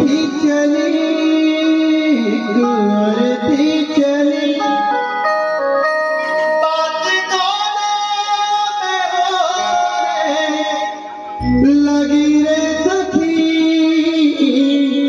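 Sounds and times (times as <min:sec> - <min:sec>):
man singing into a microphone: 0:00.0 - 0:05.4, 0:06.2 - 0:15.0
live band held tones: 0:09.5 - 0:15.0.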